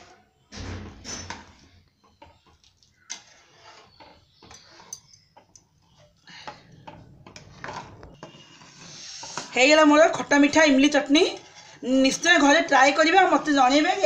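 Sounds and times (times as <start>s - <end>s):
spatula scraping in pan: 2.0s - 14.0s.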